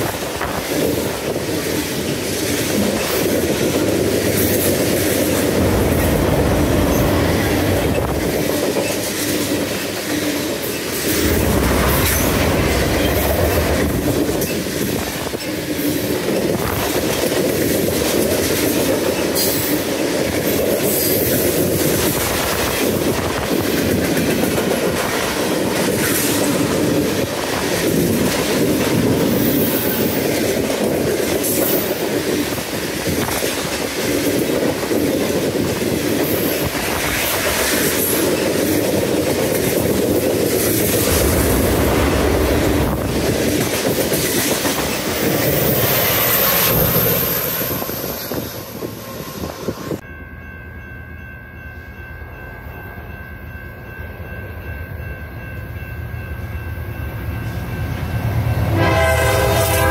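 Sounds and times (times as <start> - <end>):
distant train tones: 0.0 - 16.8, 19.1 - 59.9
freight train passing: 0.0 - 59.9.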